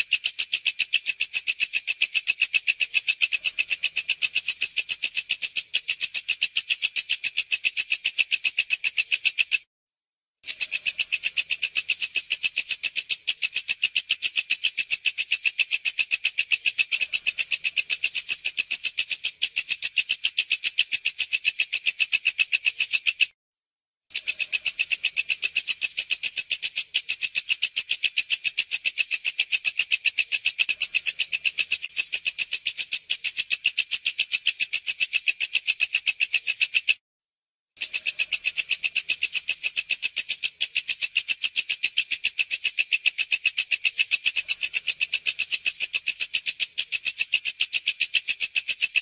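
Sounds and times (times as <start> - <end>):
bush cricket chirping: 24.3 - 36.8, 37.8 - 49.0.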